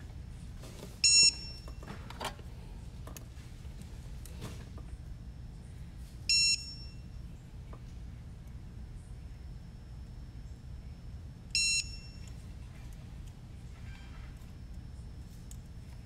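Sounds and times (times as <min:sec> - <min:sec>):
short electronic beeps: 0:01.0 - 0:01.7, 0:06.3 - 0:06.9.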